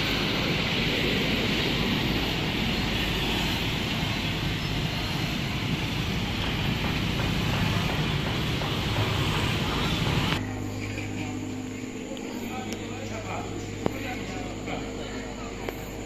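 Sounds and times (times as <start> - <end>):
hiss: 0.0 - 10.4
road traffic rumble: 0.0 - 16.0.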